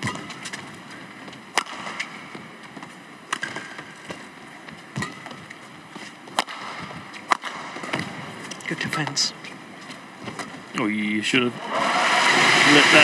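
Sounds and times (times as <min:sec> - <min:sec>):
badminton racket hitting shuttlecock: 0:00.0 - 0:00.8, 0:01.5 - 0:02.4, 0:03.3 - 0:04.2, 0:04.9 - 0:05.5, 0:06.2 - 0:08.6.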